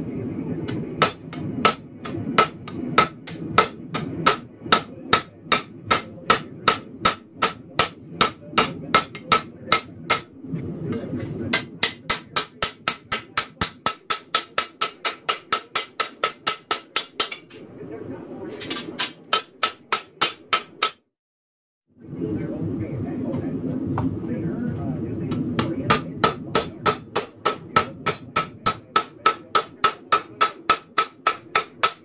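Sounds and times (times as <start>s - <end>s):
hammer ringing on anvil: 25.6s - 32.0s.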